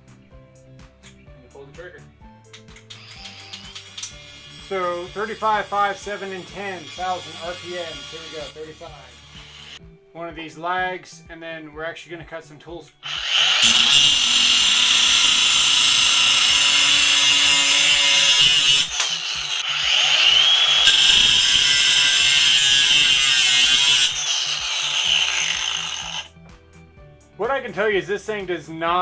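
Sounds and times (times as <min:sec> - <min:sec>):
angle grinder cutting metal: 0:02.9 - 0:09.8, 0:13.0 - 0:26.3.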